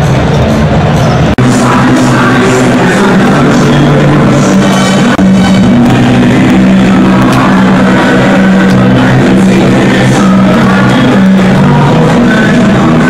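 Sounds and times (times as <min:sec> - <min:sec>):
loud rock music: 0:00.0 - 0:13.0.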